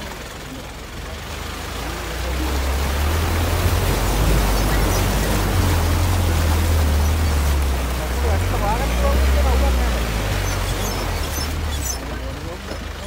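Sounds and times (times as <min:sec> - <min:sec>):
low engine rumble: 0:00.0 - 0:13.0
water rushing and splashing: 0:00.0 - 0:13.0.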